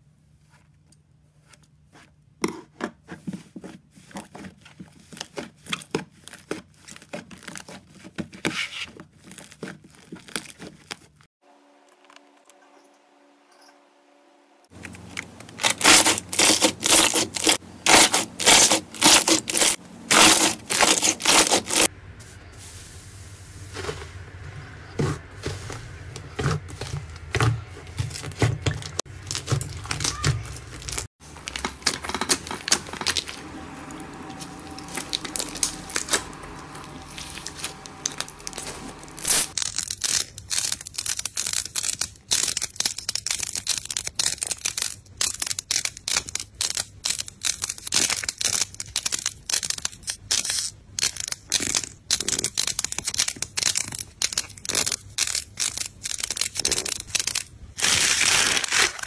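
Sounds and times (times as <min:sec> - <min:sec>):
slime being kneaded by hand: 0:01.3 - 0:11.2, 0:14.7 - 0:21.9, 0:24.9 - 0:59.0
dried clay balls crunching: 0:14.7 - 0:21.9, 0:23.6 - 0:59.0.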